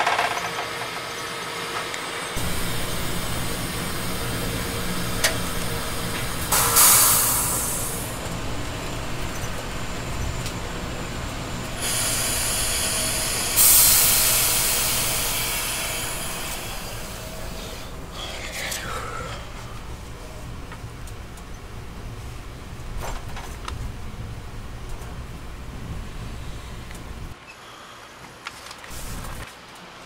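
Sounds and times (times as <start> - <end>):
train wheels rumbling on track: 1.7 - 27.4
air hiss: 2.4 - 8.2, 11.8 - 19.4.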